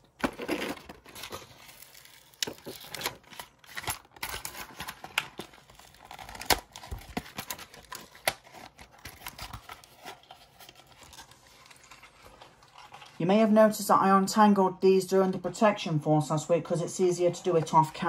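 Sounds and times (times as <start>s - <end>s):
plastic packaging clicks and crinkling: 0.0s - 13.0s.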